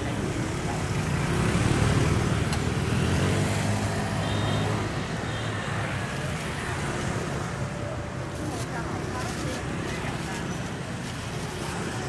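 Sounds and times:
vehicle engine running close: 0.0 - 4.2
street traffic: 0.0 - 12.0.

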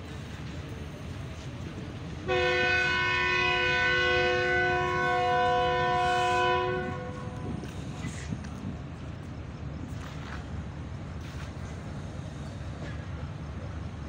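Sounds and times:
low rumble of moving train: 0.0 - 14.0
train horn chord: 2.3 - 7.7.

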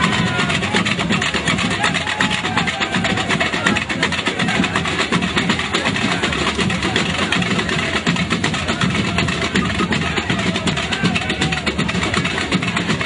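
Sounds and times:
crowd noise: 0.0 - 13.0
fast dense drumming: 0.0 - 13.0.

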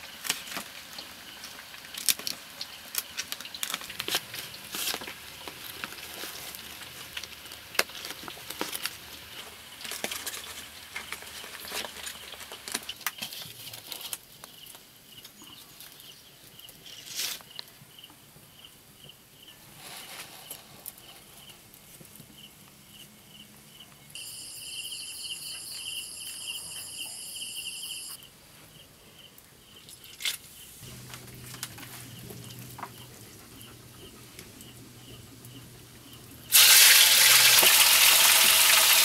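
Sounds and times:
leaves rustling and crinkling: 0.0 - 14.4, 16.9 - 17.6
faint high chirp: 24.1 - 28.8.

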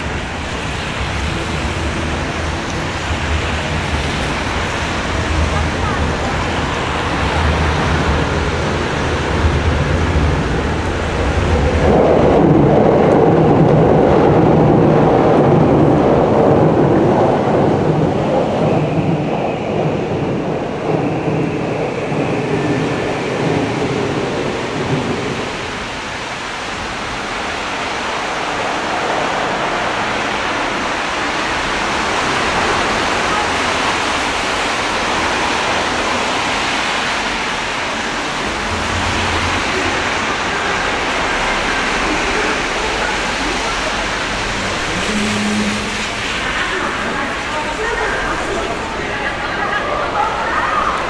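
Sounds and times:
heavy rain: 0.0 - 51.0
low rumble: 42.7 - 47.8.

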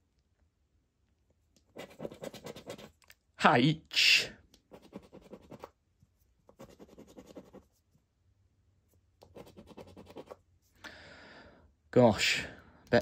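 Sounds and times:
coin scratching scratchcard: 1.7 - 2.9, 4.7 - 5.7, 6.5 - 7.6, 9.3 - 10.4.

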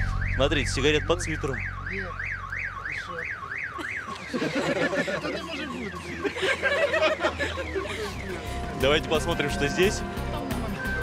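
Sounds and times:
wailing electronic alarm: 0.0 - 11.0
crowd voices murmuring: 2.9 - 11.0.

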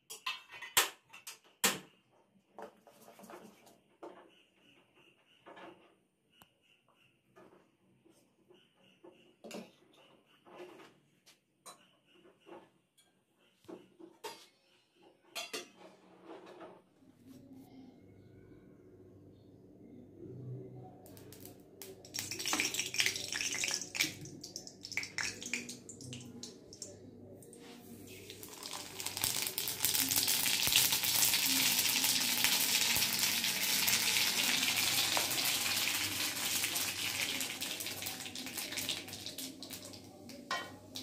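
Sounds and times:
oil sizzling: 21.2 - 26.9, 28.0 - 41.0.

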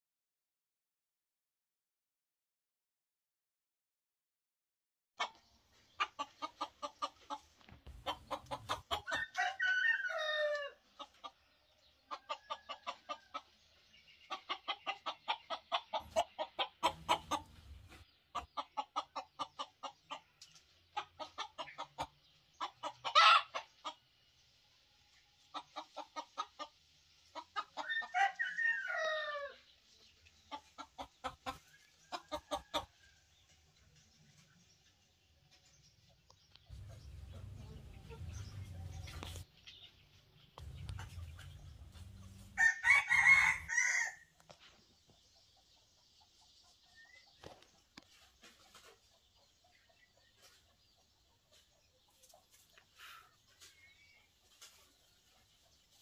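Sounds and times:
chickens clucking: 5.2 - 56.0
young rooster crowing: 9.0 - 10.8, 27.8 - 29.6, 42.6 - 44.3.

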